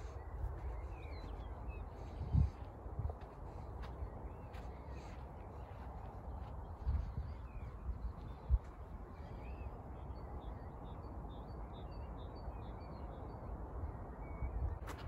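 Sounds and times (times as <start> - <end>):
wind rumbling on microphone: 0.0 - 11.4, 13.0 - 15.0
birds chirping: 0.0 - 14.6.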